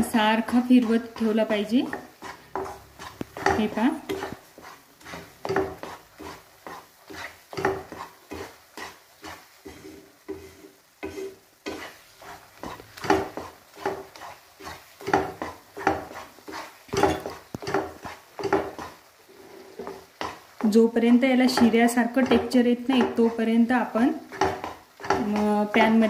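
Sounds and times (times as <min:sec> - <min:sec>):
wooden spatula scraping a pan: 0:00.0 - 0:26.0.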